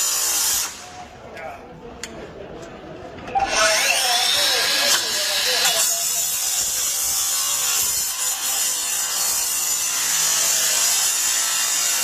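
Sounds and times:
power tool cutting metal: 0.0s - 0.9s, 3.4s - 12.0s.

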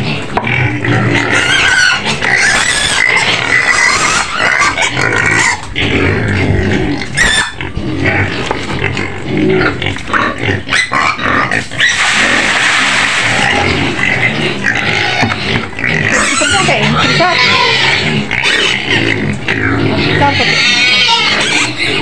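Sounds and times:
pigs squealing loudly: 0.0s - 22.0s.

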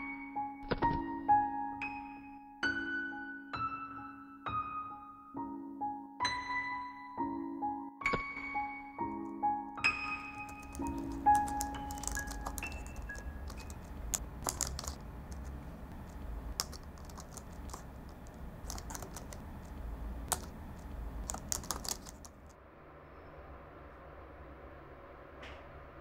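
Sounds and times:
laptop keyboard typing: 9.9s - 22.5s
faint steady hum: 10.1s - 26.0s.

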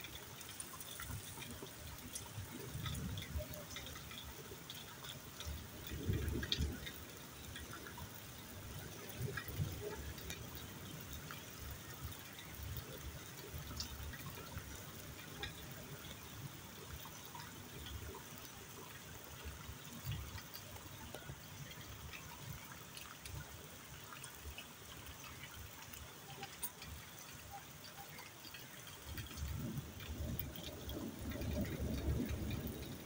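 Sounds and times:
falling water pattering: 0.0s - 33.0s
small water drips: 0.0s - 33.0s.

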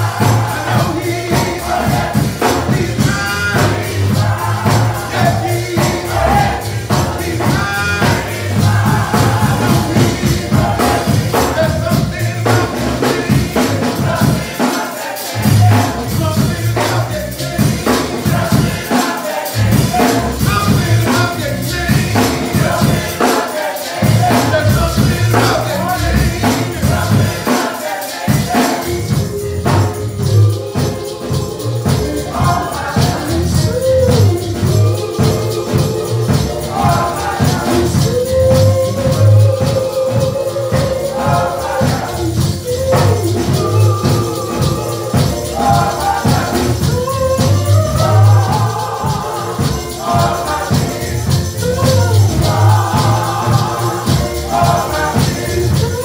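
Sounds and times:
pulsing bass: 0.0s - 14.0s, 15.4s - 17.9s, 28.9s - 56.0s
gospel choir singing: 0.0s - 56.0s
tambourine: 0.0s - 56.0s.

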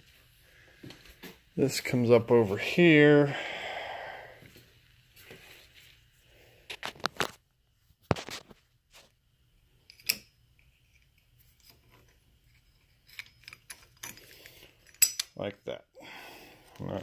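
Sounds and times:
metal parts clicking: 13.0s - 15.4s.

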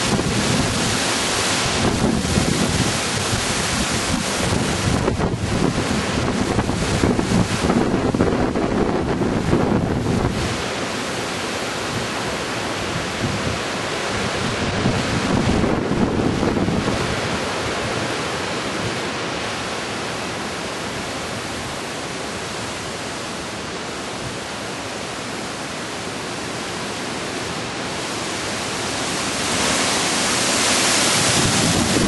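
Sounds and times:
wind buffeting microphone: 0.0s - 10.7s, 12.8s - 18.1s, 29.4s - 32.0s
wind rushing through trees: 0.0s - 32.0s.

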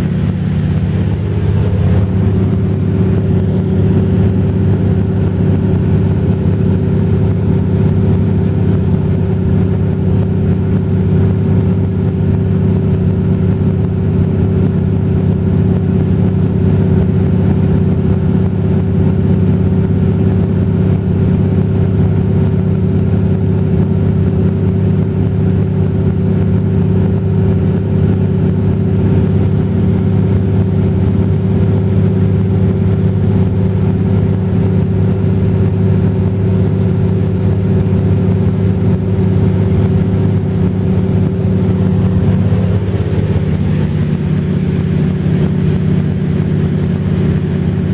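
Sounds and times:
light aircraft engine droning: 0.0s - 47.9s.

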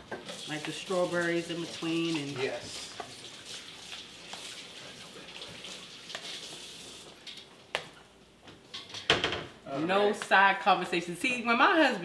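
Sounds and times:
wet squishing of stirred fruit: 0.0s - 8.0s.

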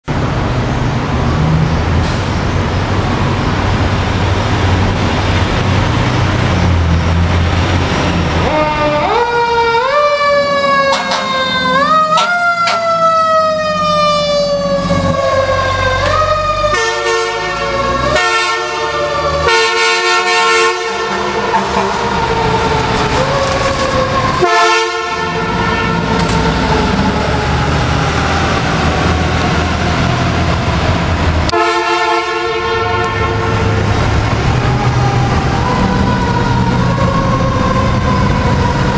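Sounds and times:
low traffic rumble: 0.0s - 38.9s
wailing siren: 7.8s - 38.9s
air horn blasts: 10.9s - 12.9s, 16.7s - 21.7s, 24.4s - 26.1s, 31.5s - 33.8s.

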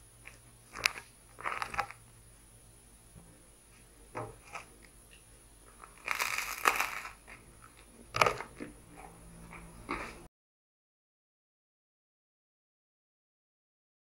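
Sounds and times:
bread crust crunching: 0.2s - 2.1s, 4.3s - 4.9s, 5.7s - 8.8s.

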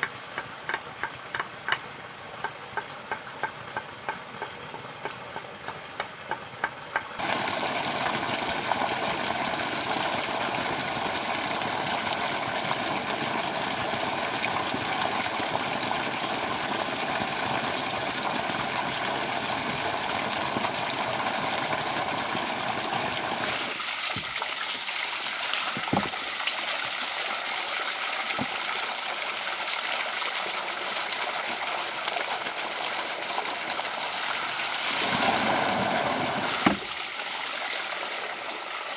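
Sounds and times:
water rushing: 7.2s - 38.9s
sharp wooden knocks: 25.8s - 26.2s, 36.6s - 36.9s.

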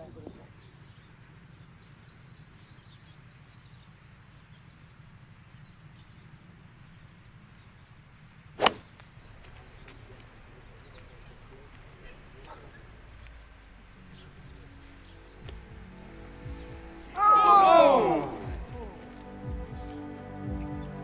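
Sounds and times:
bird chirps: 0.0s - 20.0s
outdoor background noise: 0.0s - 21.0s
golf club striking ball: 8.6s - 9.1s.

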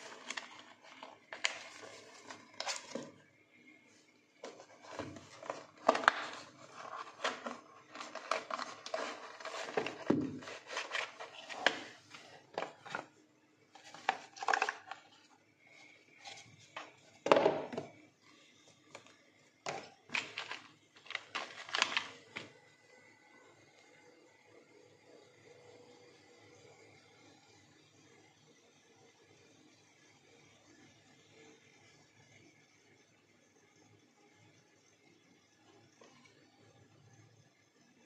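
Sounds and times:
cardboard scraping and rustling: 0.0s - 3.1s, 4.4s - 13.1s.

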